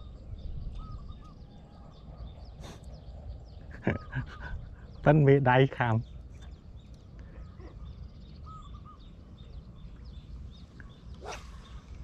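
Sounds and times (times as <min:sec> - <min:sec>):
small birds chirping: 0:00.0 - 0:12.0
steady low rumble: 0:00.0 - 0:12.0.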